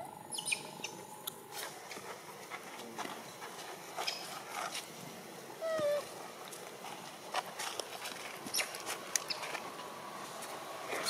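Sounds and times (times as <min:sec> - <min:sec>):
monkey call: 0:00.0 - 0:01.0, 0:05.6 - 0:06.1
monkeys moving on dry leaves: 0:01.5 - 0:11.0.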